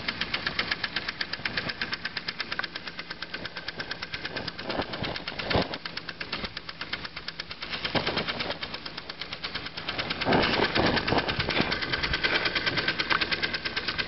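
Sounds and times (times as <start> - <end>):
steam engine exhaust beat: 0.0 - 14.0.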